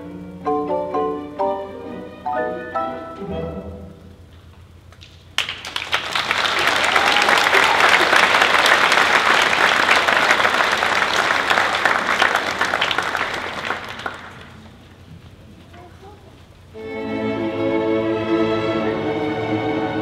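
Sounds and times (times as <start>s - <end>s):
orchestra playing: 0.0s - 4.3s, 16.7s - 20.0s
audience applauding: 5.3s - 15.0s.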